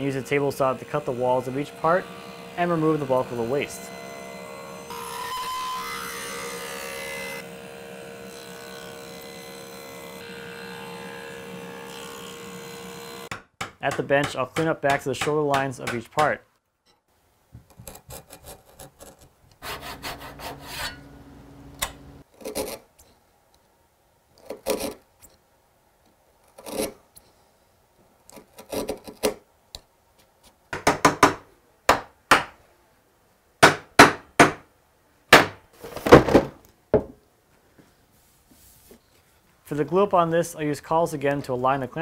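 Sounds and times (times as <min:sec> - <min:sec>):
chisel rubbing wood: 0:17.8 - 0:21.0
chisel scraping wood: 0:17.8 - 0:21.0, 0:24.4 - 0:25.0, 0:26.5 - 0:27.0, 0:28.3 - 0:29.4.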